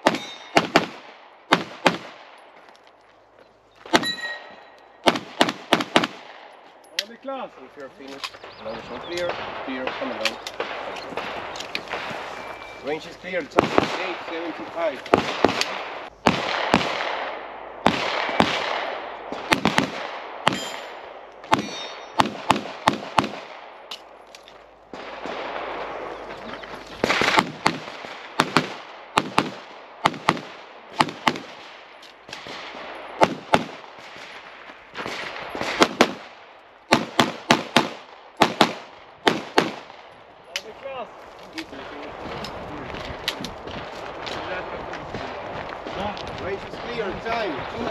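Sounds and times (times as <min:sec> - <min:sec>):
handgun shots echoing: 0:00.0 - 0:02.1, 0:08.1 - 0:12.5, 0:15.1 - 0:24.4.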